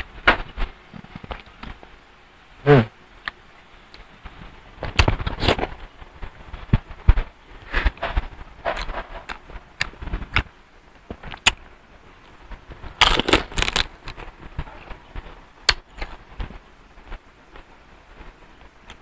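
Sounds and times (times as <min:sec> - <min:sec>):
crunchy food being chewed: 0:07.6 - 0:11.6, 0:12.2 - 0:17.7.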